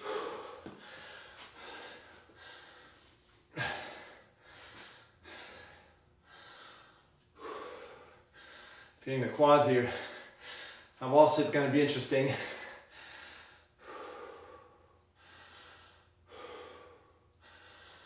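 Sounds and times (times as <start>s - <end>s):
man breathing hard: 0.0s - 11.0s, 12.2s - 18.0s.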